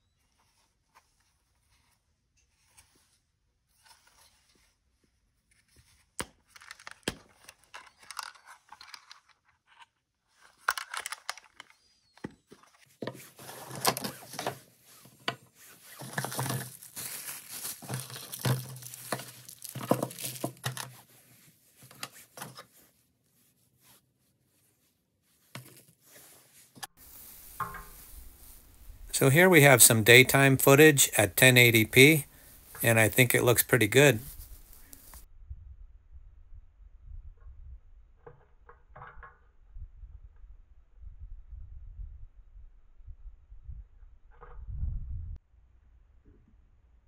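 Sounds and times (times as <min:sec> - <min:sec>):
plastic bags crinkling and tearing: 0:15.9 - 0:21.0.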